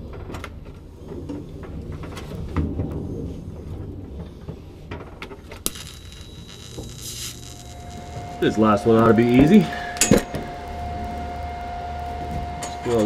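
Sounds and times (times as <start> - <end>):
low hum: 5.6 - 13.0
welding arc hissing: 5.6 - 13.0.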